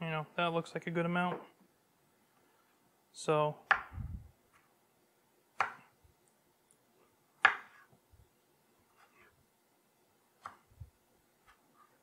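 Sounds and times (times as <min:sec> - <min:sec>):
knife chopping on wooden board: 0:07.4 - 0:07.9.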